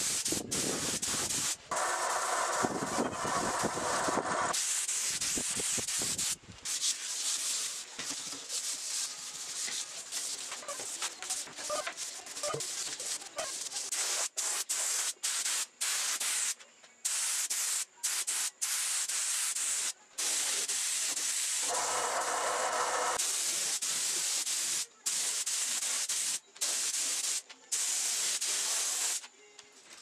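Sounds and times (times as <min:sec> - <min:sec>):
spray gun hissing: 0:00.0 - 0:07.8, 0:13.9 - 0:29.2.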